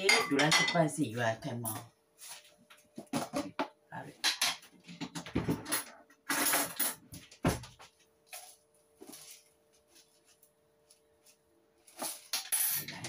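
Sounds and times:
utensils clinking: 0:12.0 - 0:13.0.

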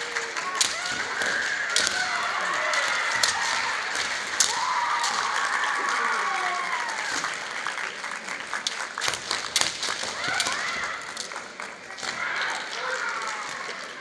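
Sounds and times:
bamboo swords clacking: 0:00.0 - 0:05.7, 0:08.6 - 0:13.7.

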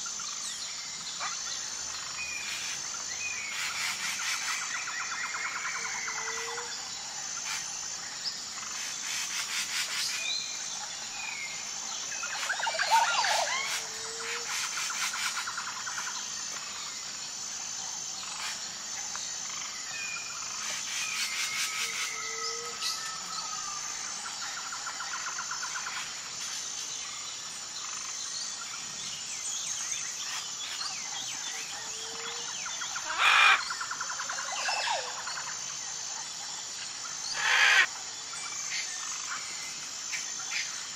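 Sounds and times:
high insect whine: 0:00.0 - 0:40.9
bird calls and whistles: 0:12.2 - 0:15.4.

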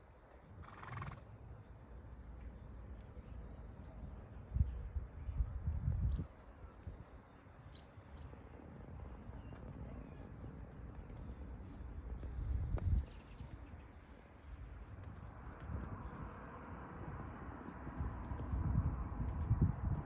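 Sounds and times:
wind buffeting microphone: 0:04.4 - 0:07.2, 0:10.8 - 0:20.0.

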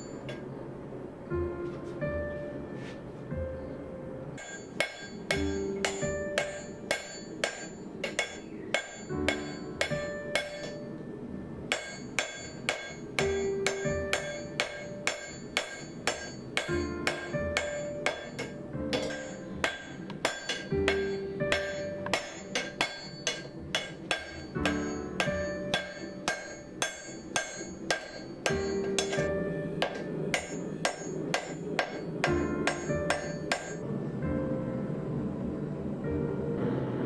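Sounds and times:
hammer striking metal on anvil: 0:00.0 - 0:00.5, 0:04.4 - 0:11.1, 0:11.7 - 0:33.8.

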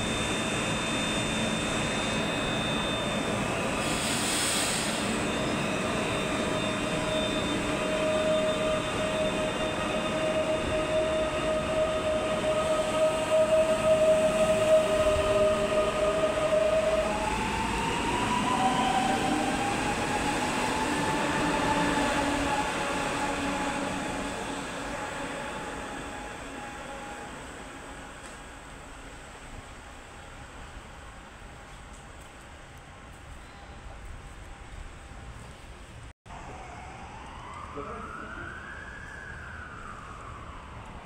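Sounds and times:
electric train motor whine: 0:00.0 - 0:30.6
train rail noise: 0:00.0 - 0:36.7.

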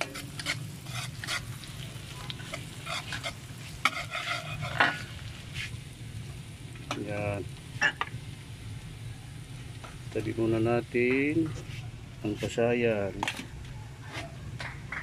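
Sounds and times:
metal spatula scraping a pan: 0:00.0 - 0:01.8, 0:02.4 - 0:05.7
food sizzling in a pan: 0:00.0 - 0:12.6.

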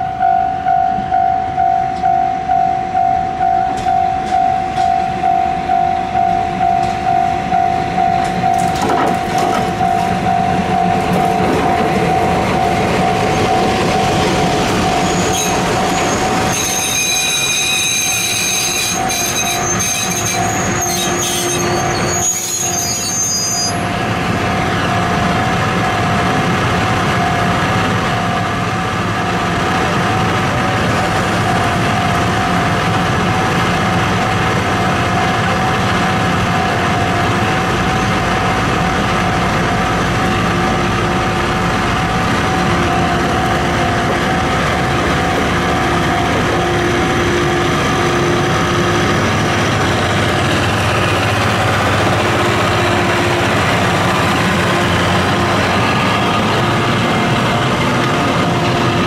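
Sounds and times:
diesel locomotive running: 0:00.0 - 0:59.0
high-pitched wheel squeal: 0:14.8 - 0:23.9.

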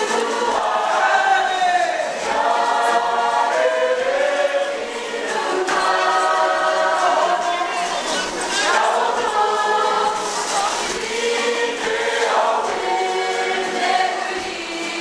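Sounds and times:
group singing in unison: 0:00.0 - 0:15.0.

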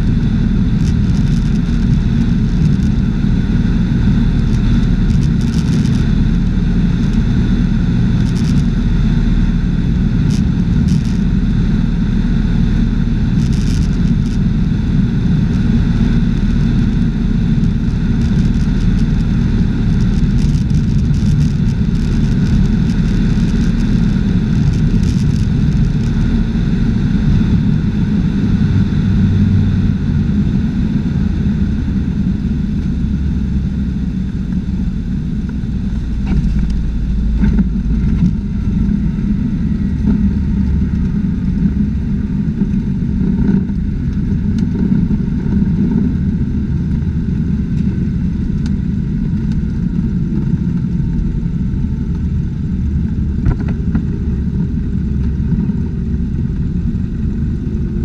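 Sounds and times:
propeller plane engine drone: 0:00.0 - 0:58.0
faint clicks and bumps: 0:00.8 - 0:03.1, 0:04.3 - 0:06.2, 0:08.2 - 0:08.7, 0:13.3 - 0:14.4, 0:17.6 - 0:26.4, 0:35.4 - 0:41.8, 0:48.6 - 0:55.9.

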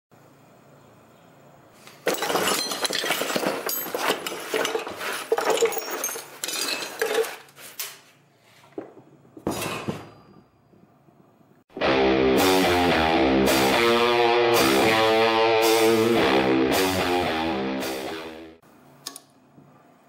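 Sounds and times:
metal parts clattering: 0:01.9 - 0:08.0.

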